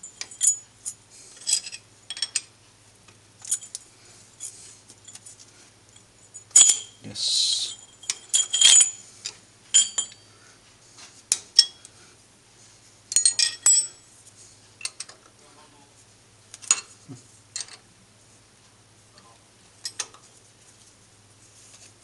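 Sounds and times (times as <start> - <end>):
metal keys clinking on metal: 0.0 - 2.4, 7.9 - 9.0.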